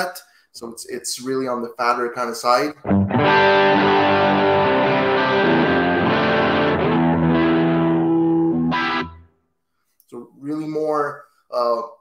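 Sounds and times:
electric guitar chords ringing: 0:02.8 - 0:09.3.

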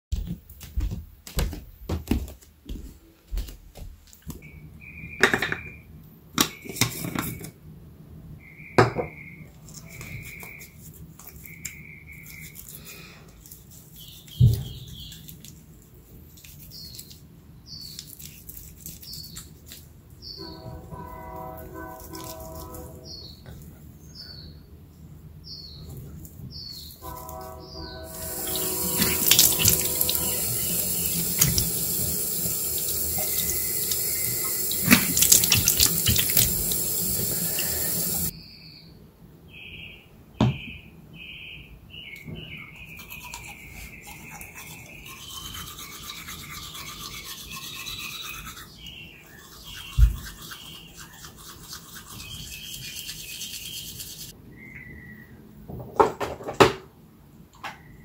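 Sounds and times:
high chirping notes: 0:27.0 - 0:31.9
tap water running into sink: 0:28.1 - 0:38.3.

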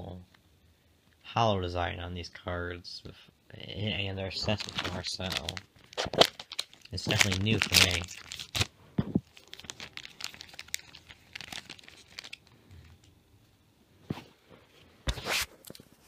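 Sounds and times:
foil pack crinkling and tearing: 0:04.3 - 0:13.0
cards rustling and clicking: 0:04.4 - 0:12.5.

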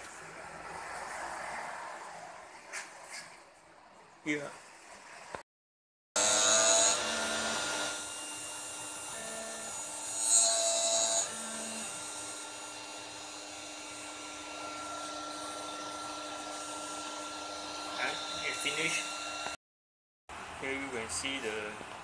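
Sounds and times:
milling spindle whine: 0:06.2 - 0:19.6.

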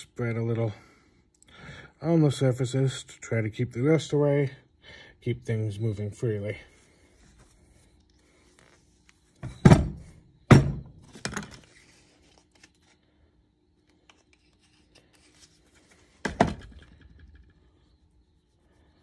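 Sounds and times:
heavy tools thunking on workbench: 0:09.4 - 0:11.4.

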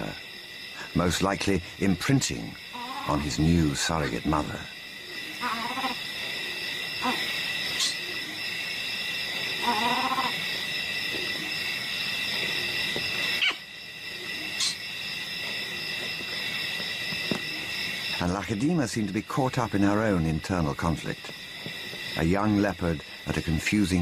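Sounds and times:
insects chirping: 0:00.0 - 0:24.0
animal call: 0:02.7 - 0:03.3, 0:05.0 - 0:08.5, 0:09.5 - 0:11.7, 0:12.4 - 0:14.9.

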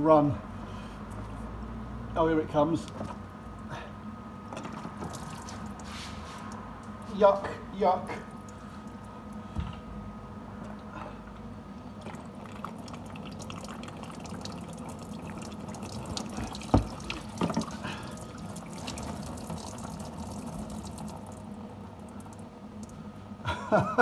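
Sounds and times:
fuel pouring and splattering: 0:04.5 - 0:06.9, 0:12.0 - 0:23.0
drips pattering on plastic: 0:04.5 - 0:07.2, 0:12.0 - 0:23.0.

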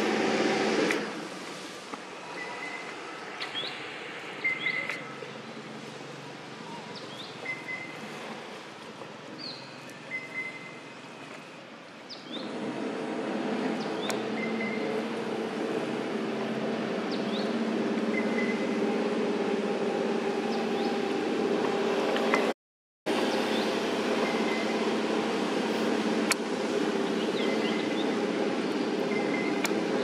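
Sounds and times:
motor engine running: 0:00.0 - 0:01.4, 0:12.2 - 0:30.0.

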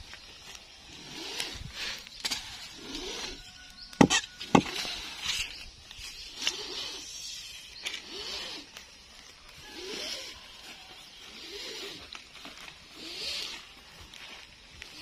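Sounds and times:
rustling in dry fronds: 0:00.0 - 0:15.0
machete striking tree trunk: 0:03.9 - 0:04.8.

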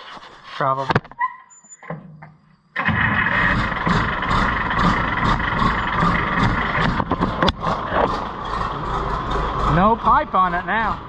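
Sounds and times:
diesel tractor engine starting: 0:02.8 - 0:11.0.

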